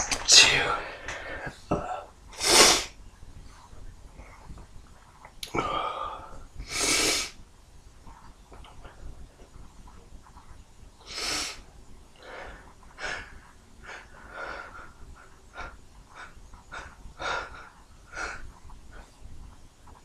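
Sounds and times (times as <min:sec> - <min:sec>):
man sniffing: 0:02.4 - 0:02.9, 0:06.7 - 0:07.3.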